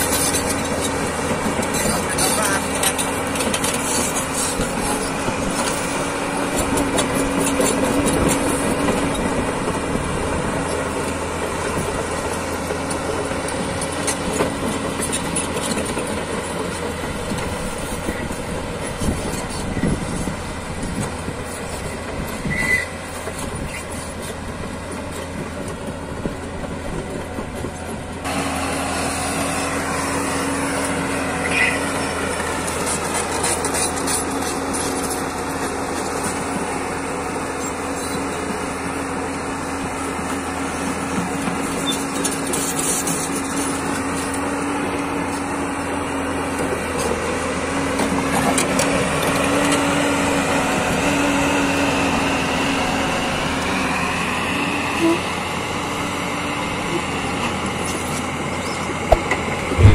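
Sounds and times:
excavator engine and hydraulics: 0.0s - 59.9s
track squeals: 21.4s - 24.3s, 28.3s - 35.6s.

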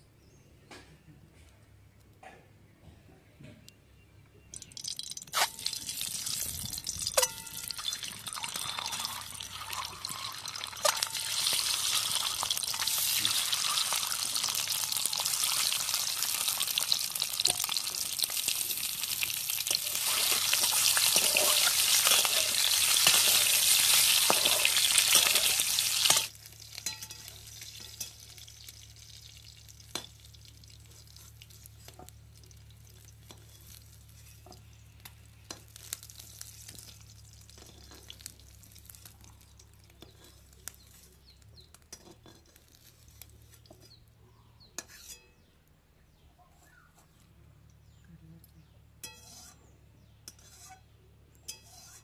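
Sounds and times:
eggs sizzling in hot oil: 4.6s - 43.8s
ladle clinking and scraping in wok: 6.9s - 18.9s, 19.6s - 28.6s, 49.0s - 49.7s, 50.3s - 52.0s.

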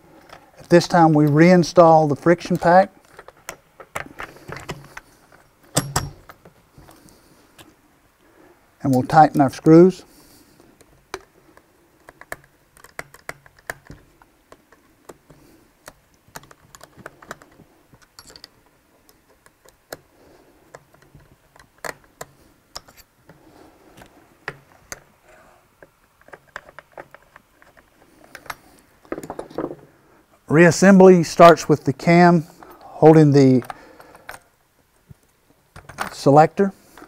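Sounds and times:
hand tool clicks and metal taps: 2.5s - 6.5s, 10.8s - 20.1s, 20.7s - 23.1s.

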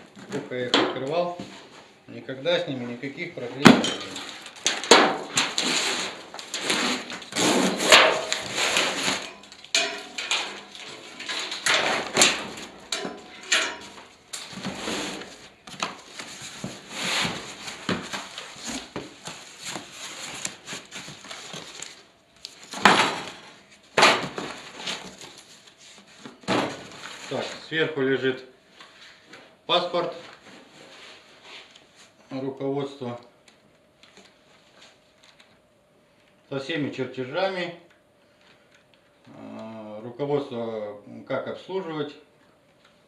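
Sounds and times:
cardboard scraping and rustling: 5.3s - 9.4s, 14.4s - 22.0s.

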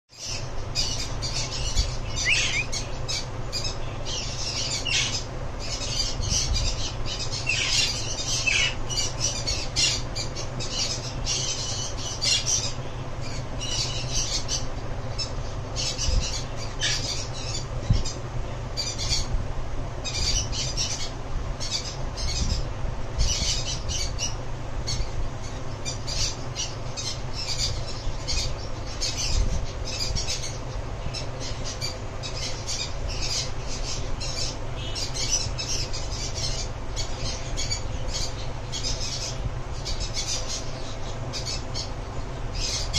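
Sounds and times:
parrot squawking: 1.4s - 3.0s.

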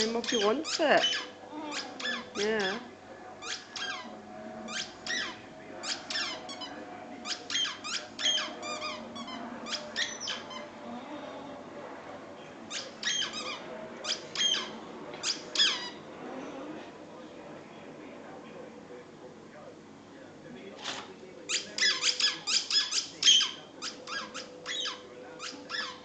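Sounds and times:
dog whining: 0.1s - 2.8s, 3.4s - 11.6s, 12.7s - 16.8s, 21.5s - 26.0s.

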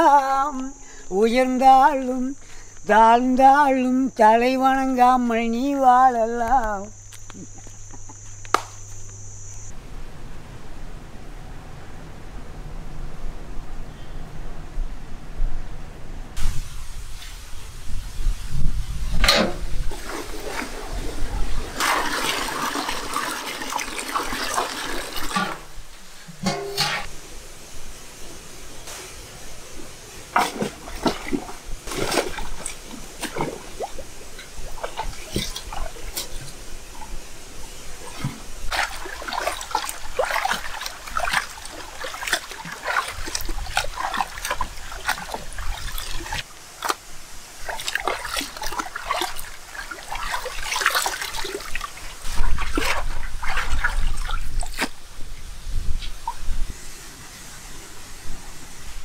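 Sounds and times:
water splashing and sloshing: 19.2s - 27.2s, 29.6s - 59.0s.

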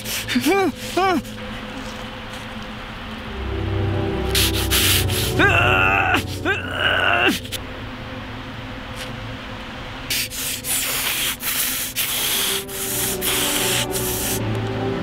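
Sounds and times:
low steady hum: 0.0s - 10.8s, 11.7s - 15.0s
harsh rasping noise: 4.3s - 7.6s, 10.1s - 14.4s.

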